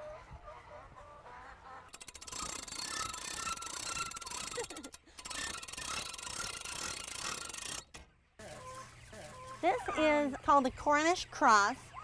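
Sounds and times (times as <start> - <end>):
ratchet winch clicking: 1.9 - 8.0.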